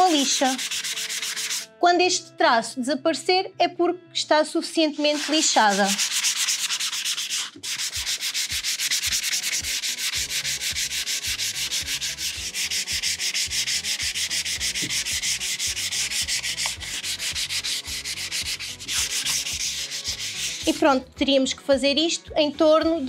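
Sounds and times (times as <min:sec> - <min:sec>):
sandpaper scratching on wood: 0:00.0 - 0:01.7, 0:04.9 - 0:20.8.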